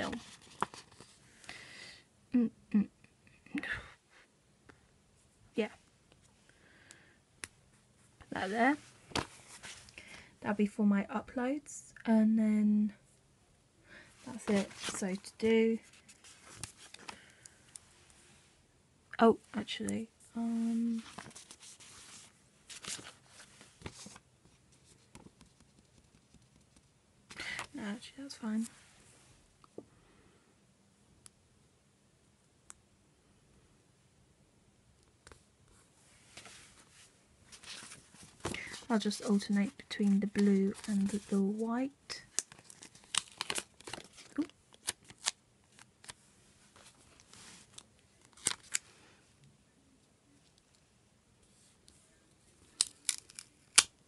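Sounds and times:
paper sheets rustling: 0.0s - 1.2s, 8.7s - 9.9s, 14.3s - 15.2s, 15.8s - 17.2s, 20.8s - 25.3s, 36.3s - 41.5s, 42.4s - 48.8s
sticker paper crinkling and snapping: 37.7s - 41.4s, 42.2s - 46.2s, 47.7s - 48.8s, 52.7s - 53.9s.

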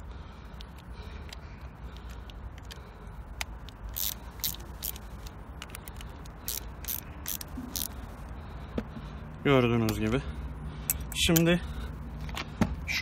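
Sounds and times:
low steady hum: 0.0s - 13.0s
hand tool tightening screws: 3.8s - 8.0s.

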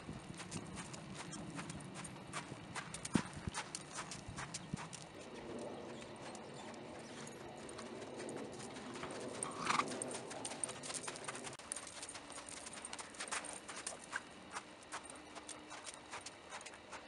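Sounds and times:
horse hooves on sand: 0.0s - 17.0s.

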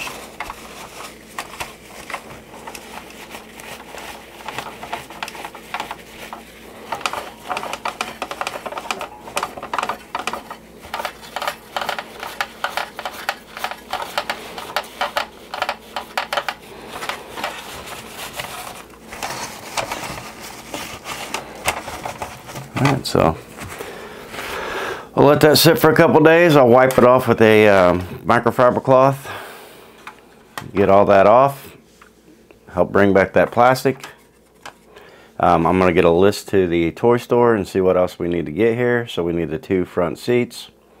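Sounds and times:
cloth rubbing hard plastic: 0.0s - 24.6s, 33.6s - 34.9s.

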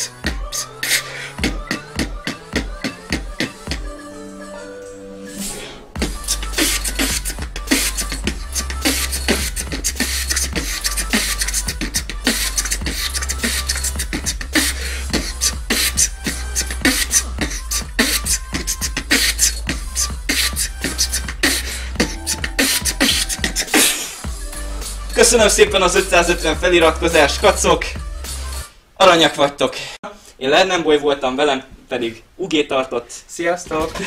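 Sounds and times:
beatboxing: 0.0s - 4.1s, 6.0s - 28.7s
low bass hum: 6.0s - 23.6s, 24.3s - 28.6s.

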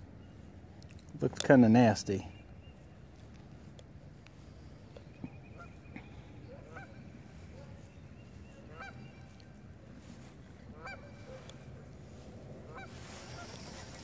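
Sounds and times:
goose honking: 6.5s - 7.1s, 8.5s - 9.5s, 10.7s - 11.4s, 12.6s - 14.0s.

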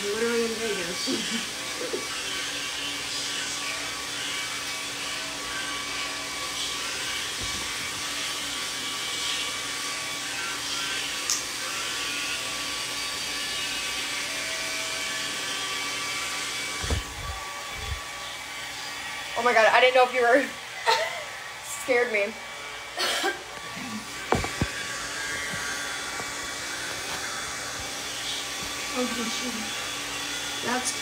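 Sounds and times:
hair dryer blowing: 0.0s - 31.0s
low thumps: 16.8s - 18.0s.

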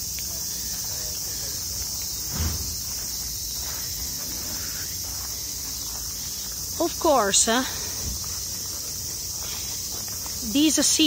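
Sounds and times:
cicadas droning: 0.0s - 11.0s
low thump: 2.3s - 3.0s.

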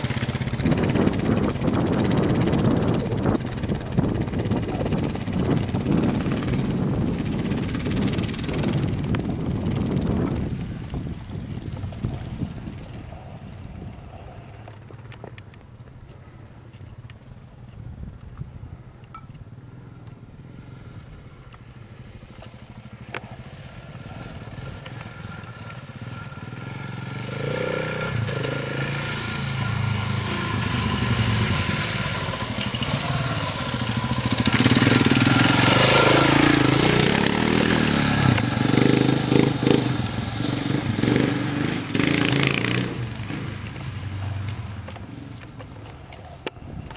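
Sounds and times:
motorcycle engine passing by: 0.0s - 14.9s, 19.6s - 46.9s.

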